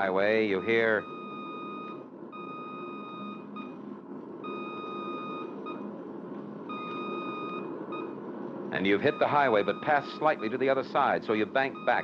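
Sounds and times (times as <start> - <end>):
morse radio tone: 0.0 - 1.6, 8.8 - 12.0
low background noise: 0.0 - 12.0.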